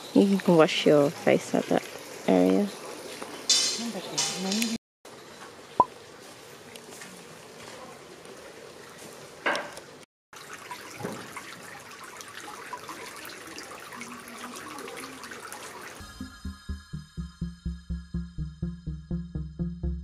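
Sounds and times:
water dripping into stone basin: 10.4 - 16.0.

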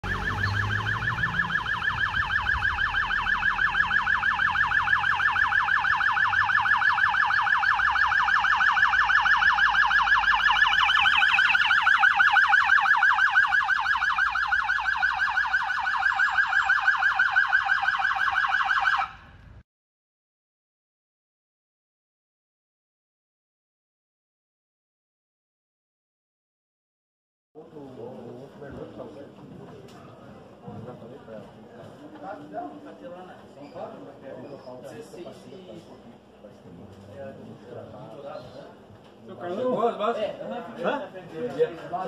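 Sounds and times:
police siren yelping: 0.0 - 19.4.

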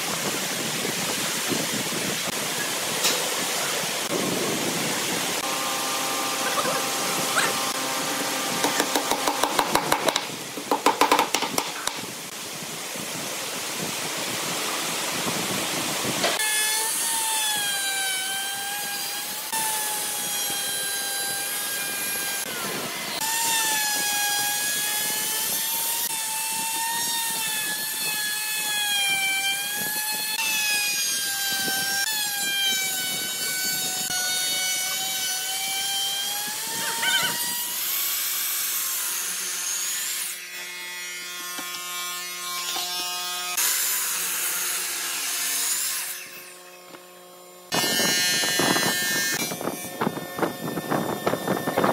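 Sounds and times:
wood router whining: 3.4 - 12.2, 16.2 - 51.9
miter saw motor hum: 5.4 - 9.2
saw blade cutting wood: 5.4 - 12.1, 16.2 - 47.1, 47.7 - 51.9.

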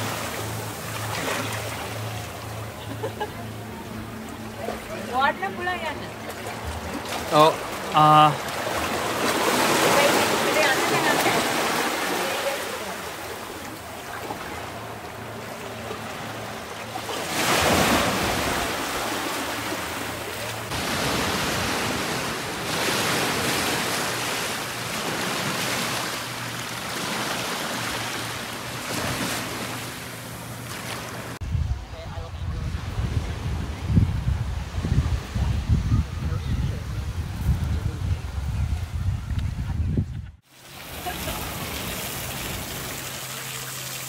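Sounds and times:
sea waves breaking on beach: 0.0 - 31.4, 40.4 - 44.0.

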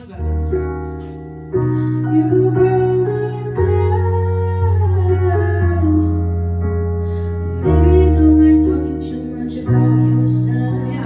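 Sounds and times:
woman singing into microphone: 2.1 - 6.4, 7.6 - 11.0.

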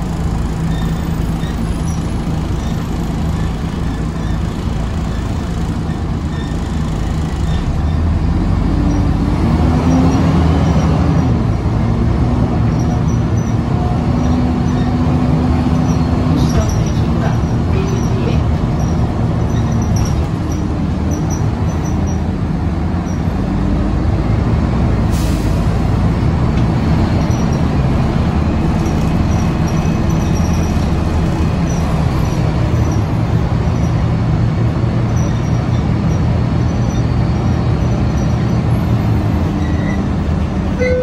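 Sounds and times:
bus engine drone: 0.0 - 41.0
road and body noise: 0.0 - 41.0.

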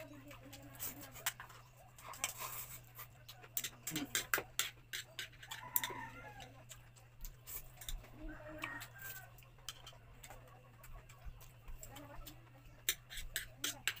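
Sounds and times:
utensils clicking on ceramic bowls: 3.5 - 8.0, 12.2 - 14.0.

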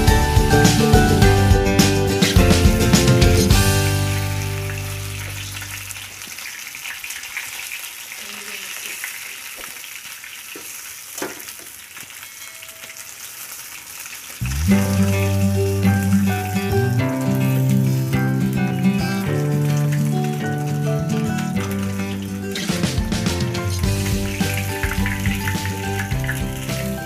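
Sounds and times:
background music: 0.0 - 5.7, 14.4 - 27.0
fish sizzling in hot oil: 3.5 - 27.0.

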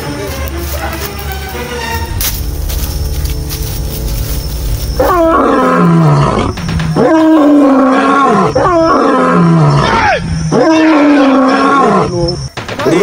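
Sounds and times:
low rumble: 1.8 - 7.9
lion roaring: 4.9 - 12.4.

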